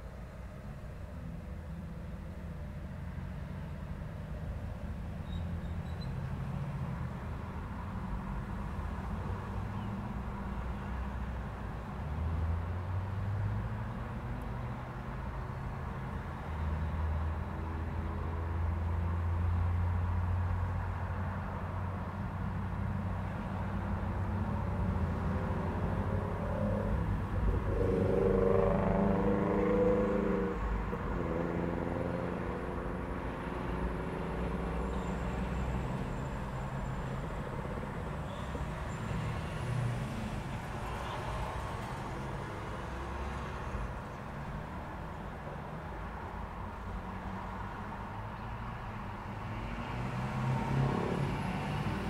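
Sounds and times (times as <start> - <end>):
traffic engines rumbling: 0.0 - 52.0
vehicle engine passing: 24.8 - 40.4, 49.4 - 52.0.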